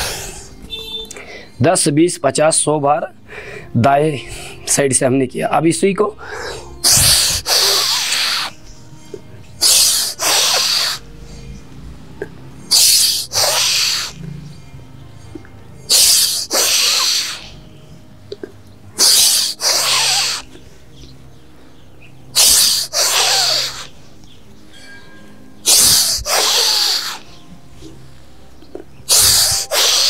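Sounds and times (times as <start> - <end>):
man breathing forcefully through nose: 0.0 - 0.6, 1.2 - 1.6, 3.2 - 3.7, 6.2 - 8.6, 9.6 - 11.7, 12.7 - 14.2, 15.9 - 17.6, 19.0 - 20.9, 22.4 - 23.9, 25.6 - 27.4, 29.1 - 30.0.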